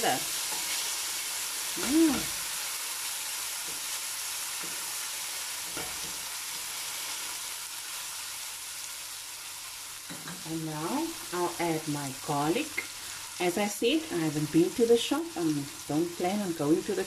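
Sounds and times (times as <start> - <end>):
vegetables sizzling in oil: 0.0 - 17.0
person humming: 1.8 - 2.3.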